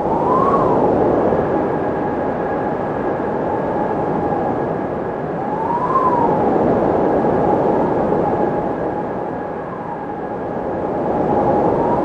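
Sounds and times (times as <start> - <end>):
thin wind whistling: 0.0 - 12.0.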